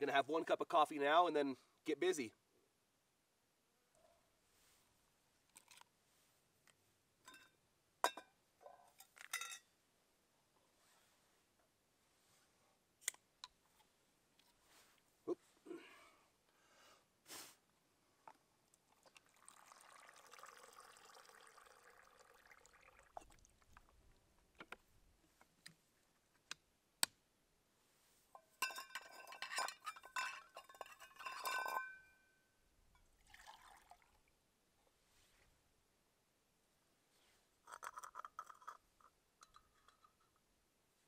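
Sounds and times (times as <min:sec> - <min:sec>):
metal pot clinking and ringing: 0:09.3 - 0:09.6, 0:28.6 - 0:32.4
water pouring into a mug: 0:18.9 - 0:23.9, 0:33.2 - 0:34.3
water pouring into a pot: 0:19.0 - 0:23.8, 0:33.2 - 0:34.3.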